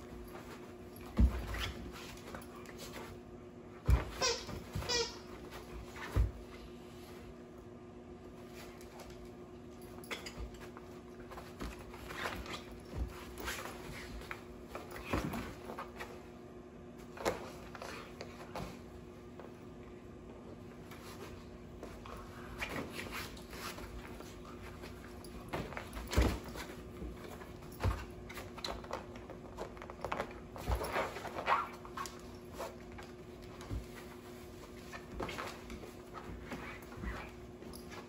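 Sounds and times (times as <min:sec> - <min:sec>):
dogs play-wrestling thumps: 0:00.0 - 0:03.2, 0:03.8 - 0:06.6, 0:09.9 - 0:16.2, 0:20.8 - 0:38.0.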